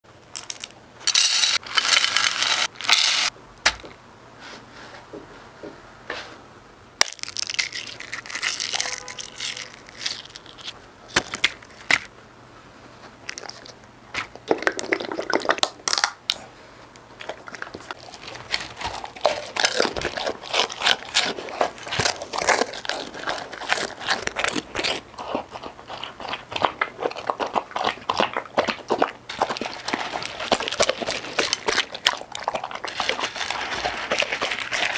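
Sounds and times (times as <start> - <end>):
dry kibble rattling into glass dish: 0.4 - 3.3, 7.4 - 10.7
small crunching clicks: 15.9 - 25.0.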